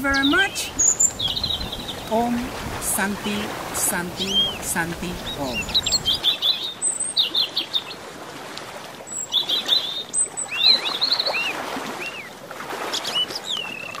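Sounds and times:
small birds chirping: 0.0 - 2.5, 4.1 - 8.0, 9.1 - 12.3, 12.9 - 14.0.

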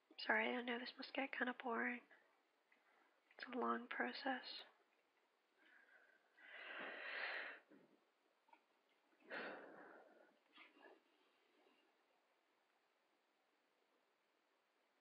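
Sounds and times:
person breathing close up: 5.6 - 7.8, 9.2 - 11.1.

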